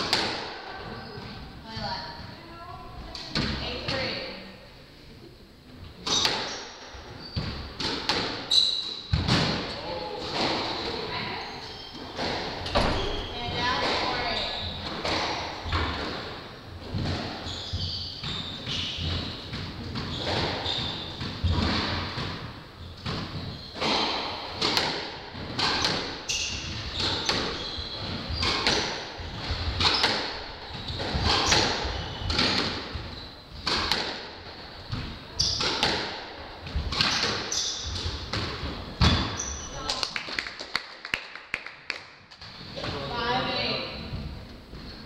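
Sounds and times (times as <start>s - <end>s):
squash ball hitting racquets and walls: 0.0s - 2.4s, 6.0s - 39.9s
shoes squeaking on wooden floor: 6.0s - 9.5s, 10.3s - 39.9s.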